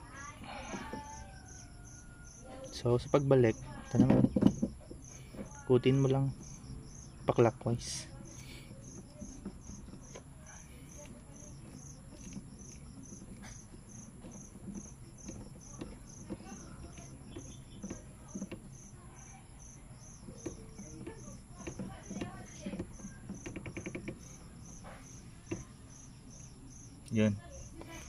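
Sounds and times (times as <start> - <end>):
insect chirping: 0.0 - 28.0
plastic knob rubbing and clicking: 7.8 - 25.7.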